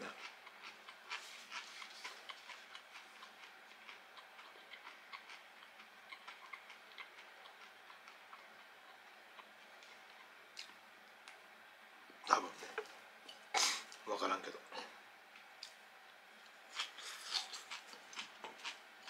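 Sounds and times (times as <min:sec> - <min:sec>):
person chewing crisp food: 0:00.0 - 0:11.4, 0:15.4 - 0:19.0.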